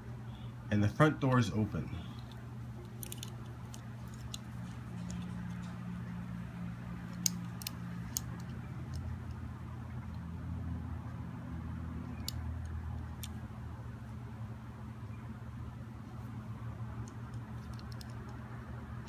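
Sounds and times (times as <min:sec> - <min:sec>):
steady low hum: 0:00.0 - 0:19.0
toy car parts clicking: 0:02.2 - 0:05.7, 0:07.1 - 0:09.4, 0:12.0 - 0:13.4, 0:17.0 - 0:18.4.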